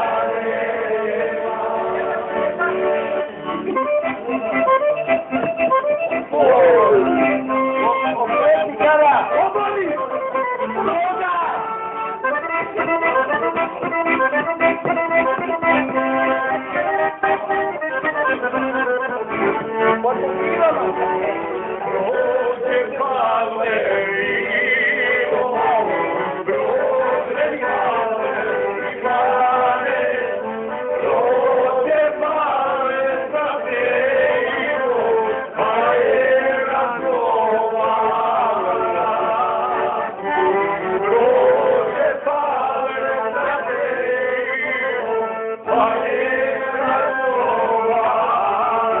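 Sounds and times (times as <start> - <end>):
instrumental accompaniment: 0.0 - 49.0
man singing: 6.3 - 11.6, 20.0 - 30.4, 31.0 - 40.2, 41.0 - 49.0.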